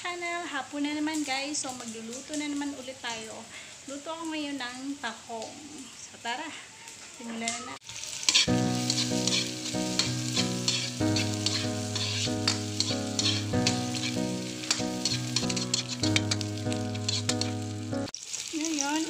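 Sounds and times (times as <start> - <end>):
food sizzling in hot oil: 0.0 - 6.2, 7.4 - 19.0
spatula scraping wok: 7.9 - 18.1
background music of held notes: 8.5 - 18.1.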